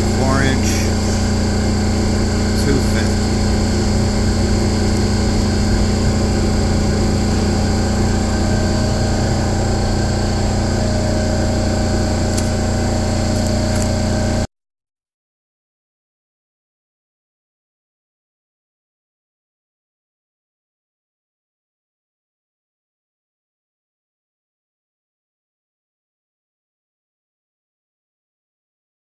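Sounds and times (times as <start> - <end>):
machine-shop machinery humming: 0.0 - 14.5.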